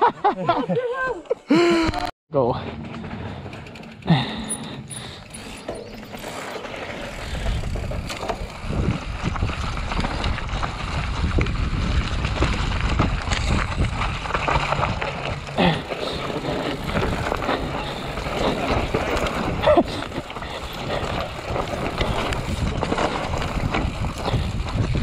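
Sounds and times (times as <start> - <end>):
bicycle tyre noise: 1.6 - 25.0
bicycle chain and frame rattle: 2.5 - 25.0
wind rush: 16.1 - 25.0.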